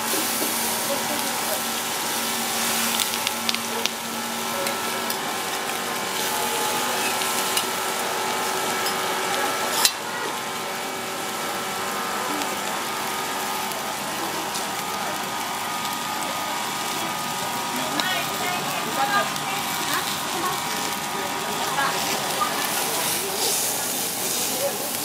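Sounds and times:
fish sizzling on a hot griddle: 0.0s - 25.0s.

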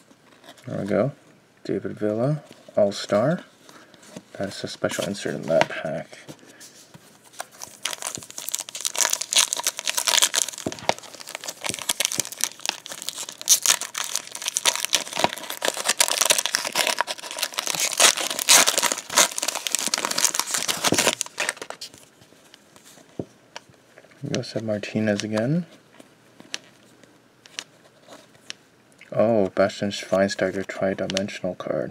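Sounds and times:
foil wrapper crinkling and tearing: 7.4s - 22.1s.

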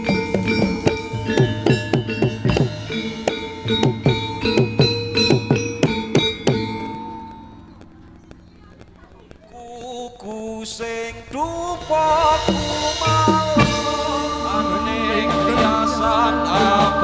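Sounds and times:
drums: 0.0s - 10.0s, 10.9s - 17.0s
people singing: 9.6s - 17.0s
live dance music: 11.6s - 17.0s.

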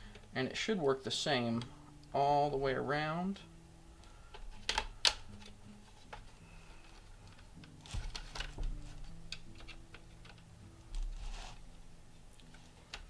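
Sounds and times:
plastic clips clicking loose: 4.3s - 6.2s, 7.2s - 11.1s
plastic creaks: 4.3s - 11.6s.

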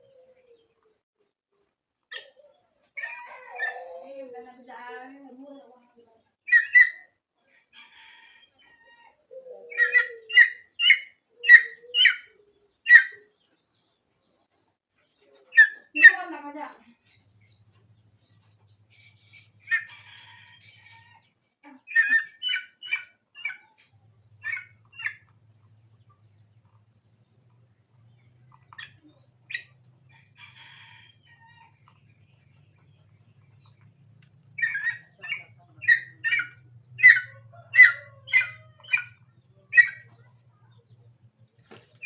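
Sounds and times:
junglefowl sharp calls: 7.8s - 13.3s, 18.9s - 25.4s, 34.4s - 40.1s.

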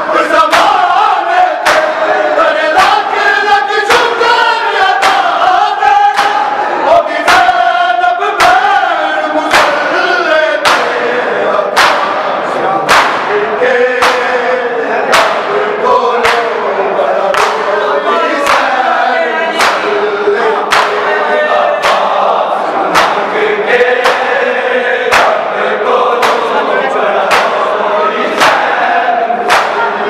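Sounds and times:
group chanting: 0.0s - 30.0s
hands slapping chests: 0.5s - 0.8s, 1.6s - 2.0s, 5.0s - 5.4s, 6.1s - 6.6s, 7.2s - 7.6s, 9.5s - 9.8s, 10.6s - 11.0s, 11.7s - 13.4s, 14.0s - 14.4s, 15.1s - 15.6s, 16.2s - 16.6s, 17.3s - 17.7s, 18.4s - 18.8s, 19.5s - 20.0s, 20.7s - 21.1s, 21.8s - 22.3s, 22.9s - 23.3s, 24.0s - 24.4s, 25.1s - 25.4s, 26.1s - 26.6s, 27.3s - 28.8s, 29.4s - 30.0s.

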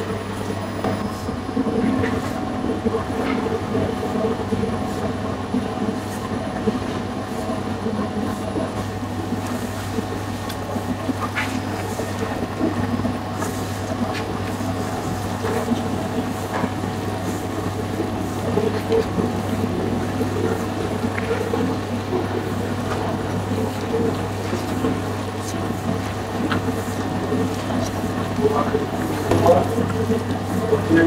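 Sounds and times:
dough-kneading machine motor humming: 0.0s - 31.0s.

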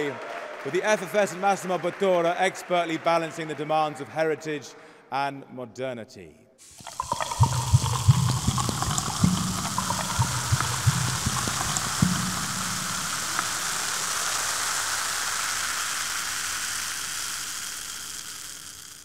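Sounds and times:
small pops and gurgles: 6.6s - 19.0s
sparkling water fizzing: 6.6s - 19.0s.

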